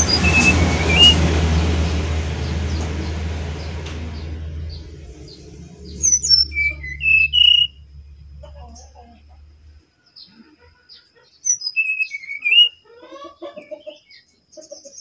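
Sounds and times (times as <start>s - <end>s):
bird singing sweet whistles: 0.0s - 1.2s, 4.7s - 7.8s, 11.4s - 12.8s
broad rumbling noise: 0.0s - 9.9s.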